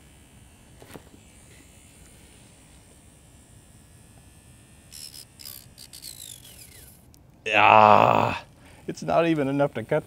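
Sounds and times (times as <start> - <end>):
small motor whine: 0.0 - 7.2
saw scraping tape: 4.9 - 7.2.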